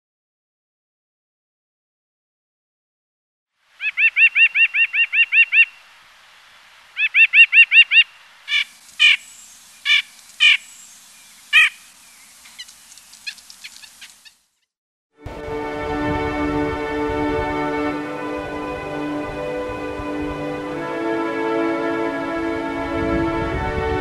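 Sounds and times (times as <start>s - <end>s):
nuthatch calling: 3.8s - 5.8s, 7.0s - 14.5s.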